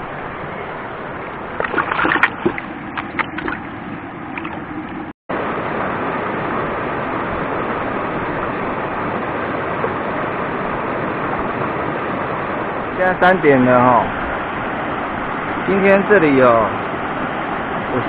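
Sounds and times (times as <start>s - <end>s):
water splashing and sloshing: 0.0s - 5.1s.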